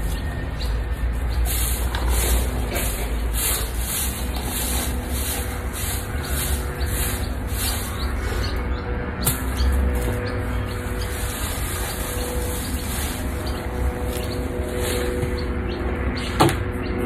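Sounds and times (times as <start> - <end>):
steady low rumble: 0.0 - 17.0
twig broom sweeping dirt: 1.1 - 8.6, 9.3 - 15.6.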